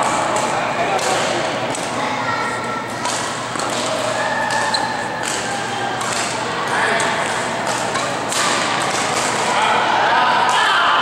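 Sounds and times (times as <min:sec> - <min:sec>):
people talking: 0:00.0 - 0:11.0
racket striking shuttlecock: 0:02.9 - 0:09.5.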